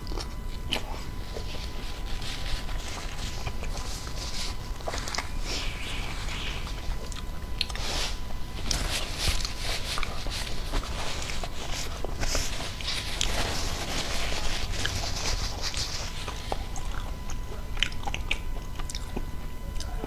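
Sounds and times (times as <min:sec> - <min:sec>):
paper tissue crinkling: 0:00.0 - 0:17.8
chewing and mouth sounds: 0:00.0 - 0:20.0.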